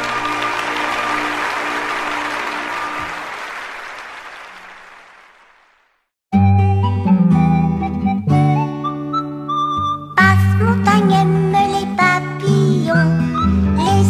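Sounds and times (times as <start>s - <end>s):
audience applauding: 0.0s - 6.1s.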